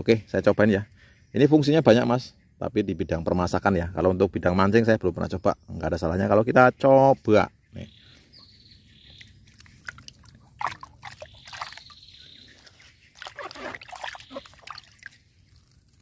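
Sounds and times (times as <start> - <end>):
water sloshing in a plastic bucket: 9.1 - 16.0.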